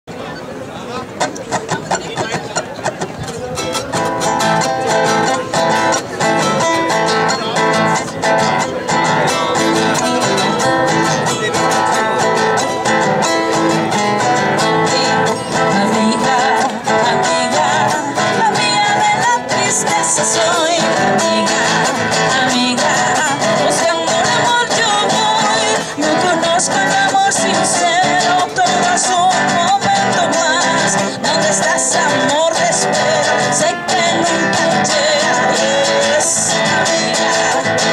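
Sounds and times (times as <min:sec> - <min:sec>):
acoustic guitar: 0:00.1 - 0:37.9
person singing: 0:09.2 - 0:37.9.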